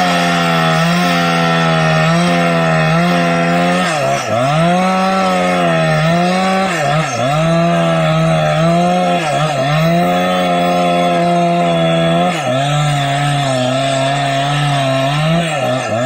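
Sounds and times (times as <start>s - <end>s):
chainsaw cutting through log: 0.0s - 16.0s.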